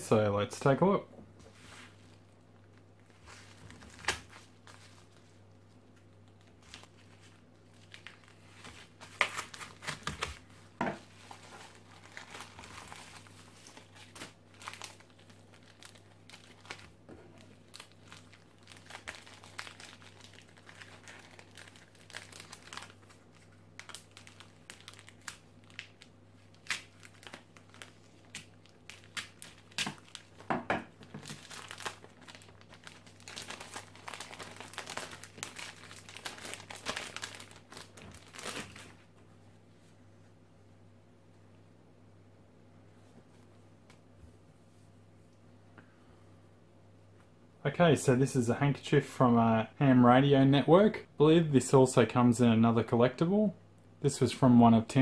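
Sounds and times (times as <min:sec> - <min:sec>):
plastic bag crackling: 0:02.7 - 0:39.0
paper mailer crinkling and tearing: 0:11.0 - 0:30.4, 0:31.1 - 0:39.0.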